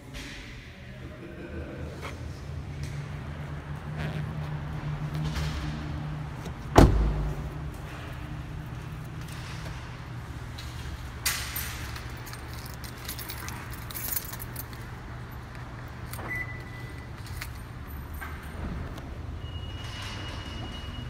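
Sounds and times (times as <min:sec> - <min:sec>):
keys jangling: 0:11.2 - 0:18.7.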